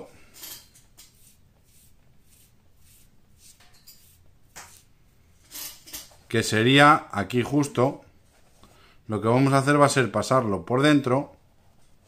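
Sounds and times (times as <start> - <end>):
soft rustles and scrapes: 0.2 - 6.4, 7.4 - 8.8, 11.5 - 12.0.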